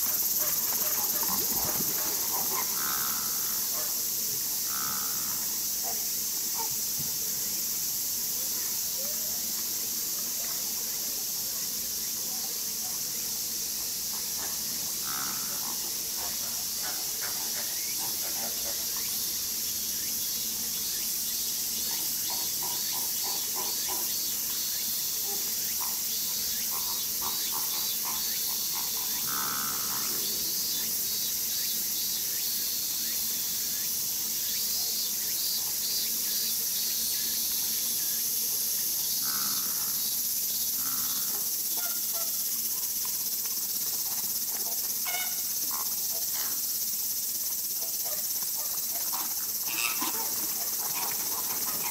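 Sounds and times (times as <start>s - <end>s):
insects droning: 0.0s - 51.9s
flamingo honk: 45.0s - 45.4s, 49.7s - 50.4s
flamingos chattering calls: 45.0s - 46.5s, 48.9s - 51.9s.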